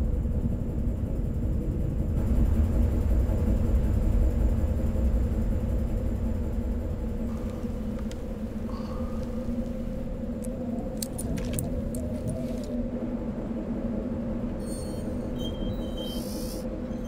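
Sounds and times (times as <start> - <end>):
deep rumble: 0.0 - 17.0
low hum: 0.0 - 17.0
hiss: 16.1 - 16.8.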